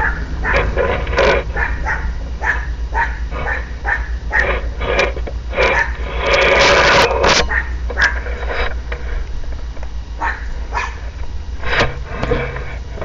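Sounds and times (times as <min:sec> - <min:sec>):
dog barking: 0:00.0 - 0:00.7, 0:01.5 - 0:04.6, 0:05.6 - 0:06.0, 0:07.4 - 0:08.2, 0:10.2 - 0:11.0.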